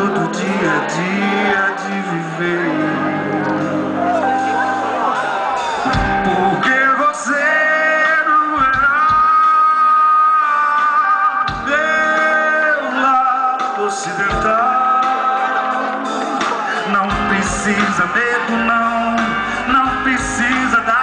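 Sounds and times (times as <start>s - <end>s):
electric guitars and drums: 2.7s - 7.1s, 13.5s - 21.0s.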